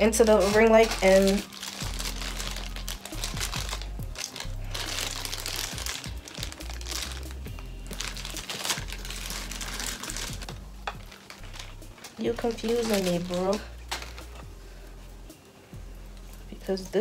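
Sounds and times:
plastic bag crinkling: 0.0 - 14.4
background music: 0.0 - 17.0.

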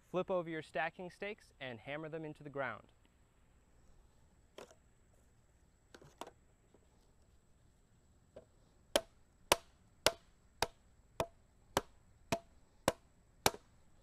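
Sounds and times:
hammer striking stake: 8.9 - 13.7.

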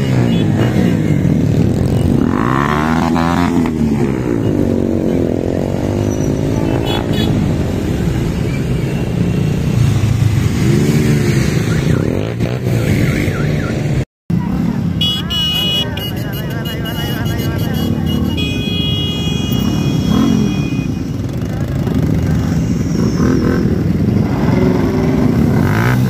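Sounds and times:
motorcycles riding past: 0.0 - 26.0.

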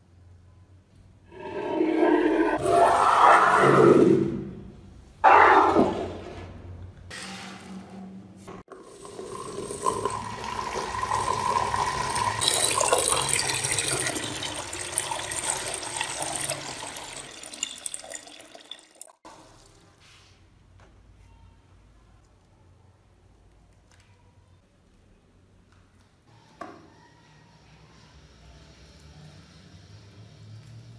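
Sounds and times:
water pouring into plastic tub: 8.7 - 19.8.

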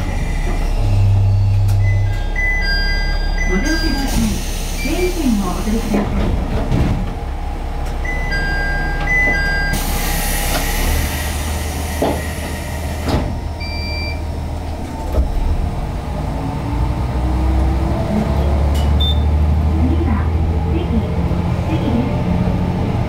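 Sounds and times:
diesel railcar engine idling: 0.0 - 23.0
short electronic beeps: 19.0 - 19.3.

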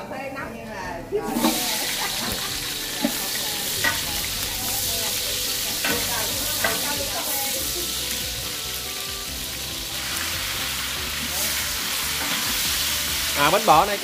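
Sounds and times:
vegetables sizzling in a pot: 1.1 - 14.0
metal ladle knocking on pot: 5.8 - 6.9.

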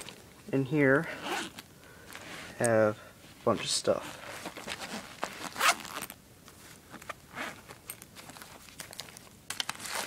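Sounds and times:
zipper being pulled open: 1.2 - 1.6, 4.0 - 6.2, 7.0 - 7.8.

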